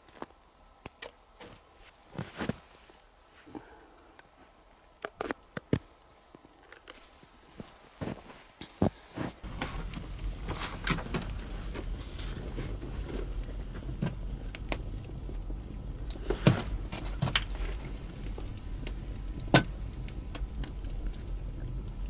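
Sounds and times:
fire low rumble: 0.0 - 22.0
wood fire crackling and popping: 0.0 - 22.0
kettle and logs knocking: 9.2 - 22.0.

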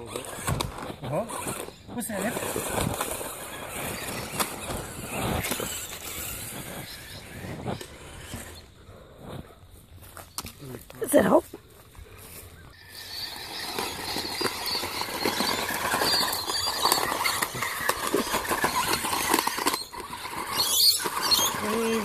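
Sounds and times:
toy electric motor whining: 0.0 - 9.4, 12.7 - 22.0
dry leaves crackling: 10.0 - 22.0.

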